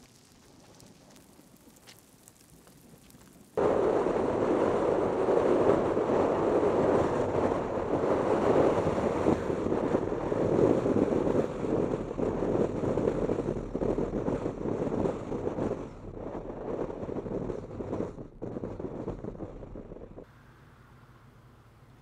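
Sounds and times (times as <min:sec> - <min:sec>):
wind gusting on microphone: 0:00.0 - 0:20.3
car road noise: 0:03.6 - 0:22.0.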